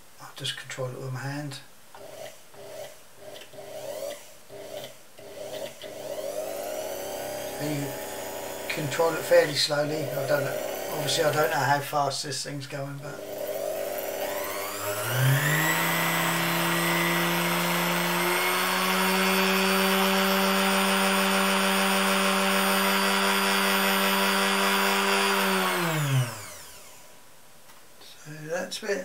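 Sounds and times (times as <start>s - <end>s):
electric motor whine: 2.0s - 11.6s, 13.2s - 27.2s.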